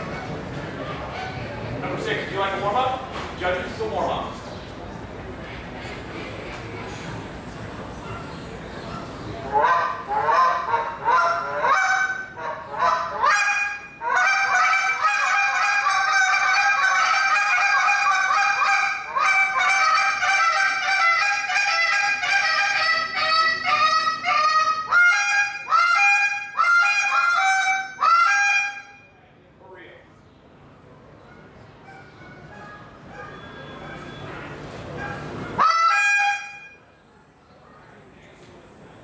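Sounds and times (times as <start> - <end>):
goose call honks and clucks: 9.5 - 28.9, 35.5 - 36.8.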